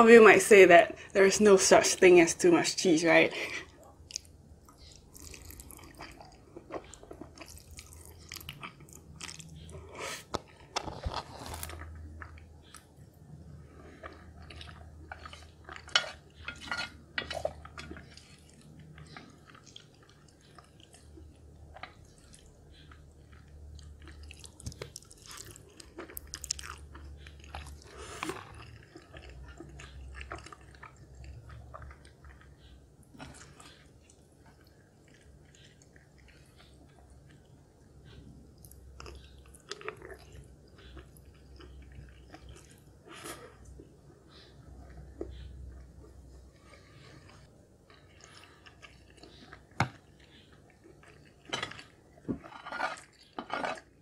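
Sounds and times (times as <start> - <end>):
wet chewing of noodles: 3.4 - 54.0.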